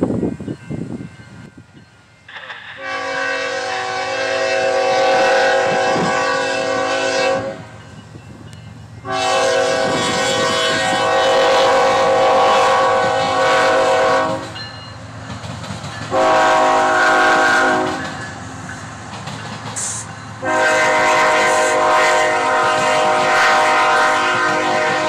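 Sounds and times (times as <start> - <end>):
locomotive air horn blasts: 2.7 - 7.8, 9.0 - 14.6, 16.1 - 18.2, 19.8 - 25.0.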